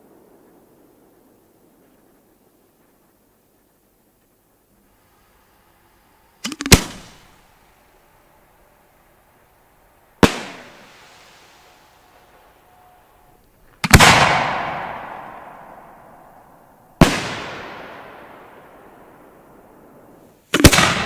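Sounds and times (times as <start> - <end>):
firework bangs echoing: 6.4 - 8.2, 10.1 - 21.0.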